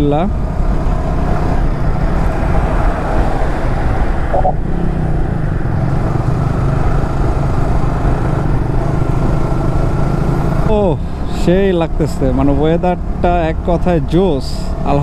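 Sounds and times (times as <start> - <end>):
motorcycle engine humming: 3.6 - 15.0.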